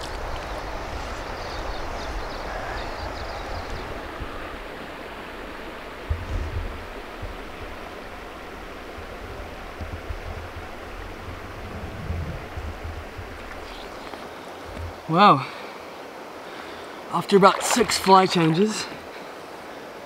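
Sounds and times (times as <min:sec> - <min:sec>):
river flowing over stones: 0:00.0 - 0:20.0
low thumps: 0:09.7 - 0:13.7.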